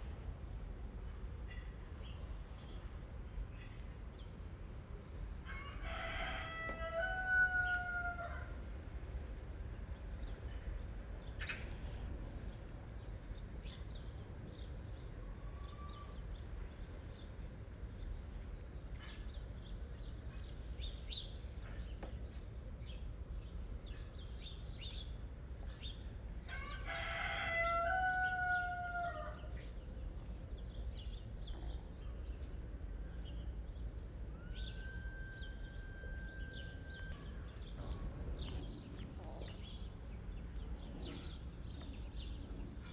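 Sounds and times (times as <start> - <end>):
rooster crowing: 5.5 - 8.5, 26.5 - 29.4, 34.4 - 37.1.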